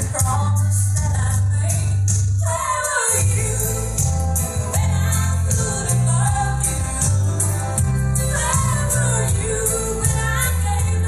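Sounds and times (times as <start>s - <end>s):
song with singing: 0.0s - 11.0s
heavy bass line: 3.2s - 11.0s.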